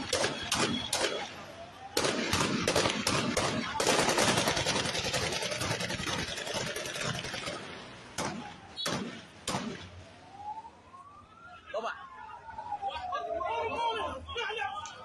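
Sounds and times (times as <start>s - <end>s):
gunshots: 0.0s - 9.9s.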